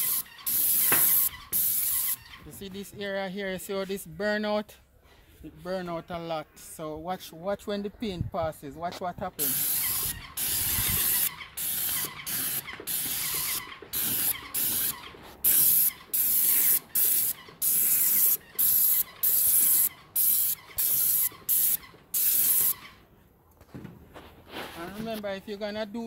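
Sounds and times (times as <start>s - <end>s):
paint sprayer hissing: 0.0s - 2.4s, 9.4s - 23.0s.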